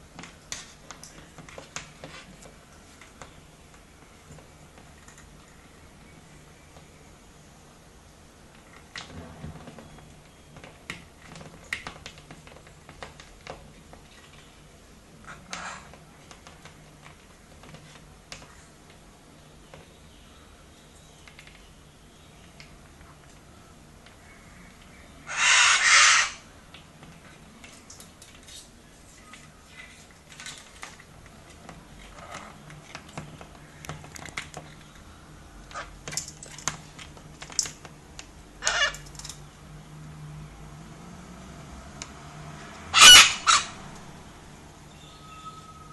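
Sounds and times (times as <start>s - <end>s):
cockatoo beaks and feet tapping: 22.4s - 38.0s.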